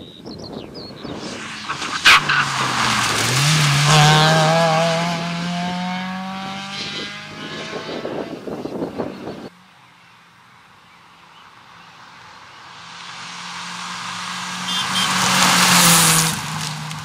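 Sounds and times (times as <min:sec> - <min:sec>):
gravel crunching under tyres: 0:01.2 - 0:04.5, 0:13.0 - 0:17.0
rally car engine accelerating: 0:01.2 - 0:09.5.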